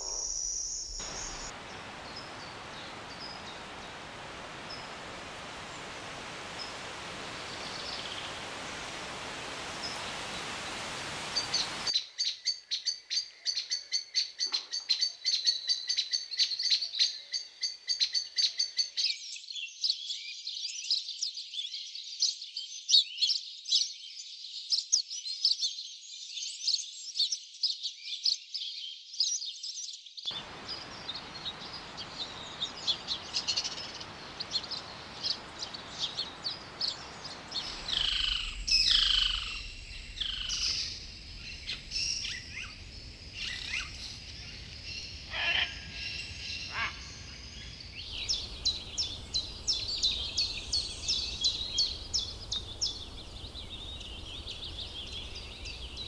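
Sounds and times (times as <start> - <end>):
birds chirping: 0.0 - 12.0, 30.3 - 56.0
forest background hiss: 0.0 - 19.0, 30.3 - 56.0
bird calls sliding downward: 32.5 - 42.7.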